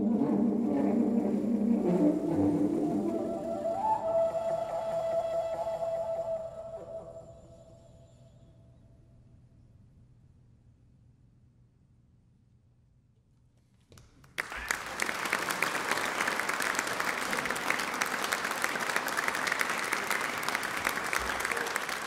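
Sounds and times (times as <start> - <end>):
audience applause: 14.3 - 22.0.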